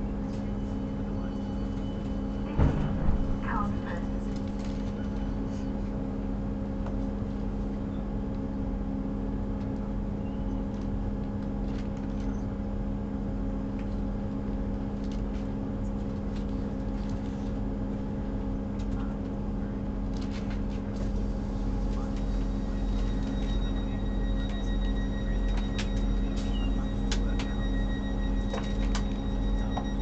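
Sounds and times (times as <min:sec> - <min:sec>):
train diesel engine idling: 0:20.8 - 0:30.0.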